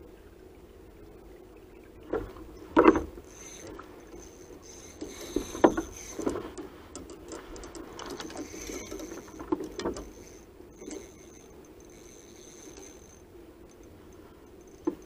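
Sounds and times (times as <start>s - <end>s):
sharp knocks and clicks: 2.1s - 3.8s, 5.0s - 11.0s, 14.7s - 15.0s
fishing reel cranking: 2.9s - 15.0s.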